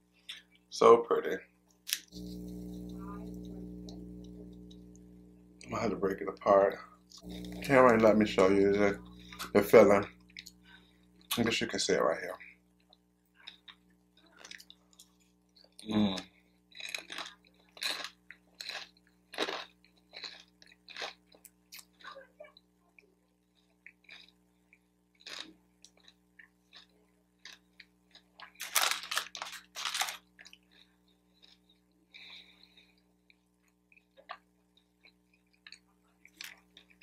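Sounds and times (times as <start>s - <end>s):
chewing with wet mouth sounds: 12.4s - 29.4s, 30.0s - 37.0s
paper bag crinkling: 28.6s - 30.3s.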